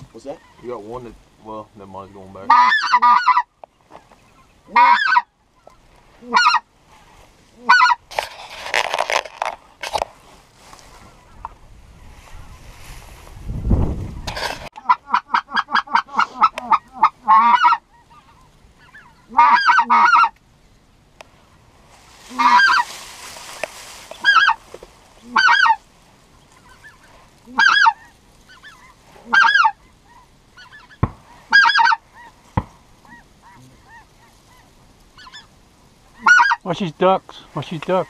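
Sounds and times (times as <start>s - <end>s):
goose honking: 2.1s - 10.0s, 14.3s - 20.4s, 22.2s - 23.1s, 24.0s - 25.8s, 26.4s - 38.0s.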